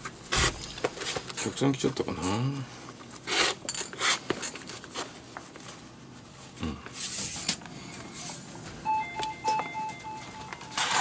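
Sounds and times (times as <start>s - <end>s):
electronic door chime beeps: 8.8s - 11.0s.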